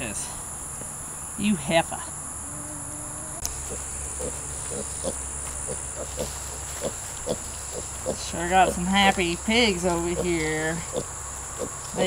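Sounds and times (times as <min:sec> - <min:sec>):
insects droning: 0:00.0 - 0:12.0
pigs grunting softly: 0:02.5 - 0:08.2.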